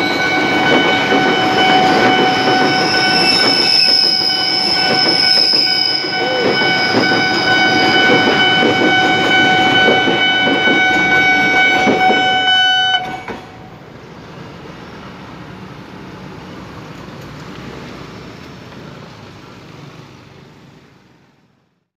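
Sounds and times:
level-crossing warning tone: 0.0s - 13.8s
passing train noise: 0.0s - 21.9s
street traffic rumble: 0.0s - 21.9s.

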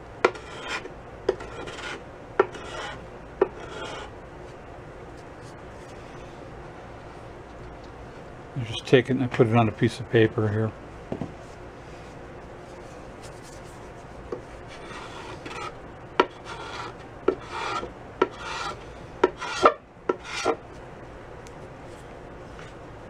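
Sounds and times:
putty knife scraping paint: 0.3s - 4.1s, 14.7s - 20.6s.

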